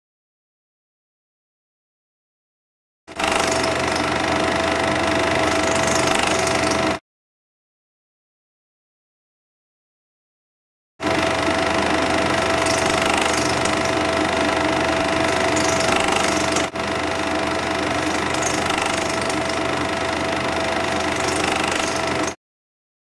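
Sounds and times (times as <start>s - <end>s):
film projector whirring: 3.1s - 7.0s, 11.0s - 22.4s.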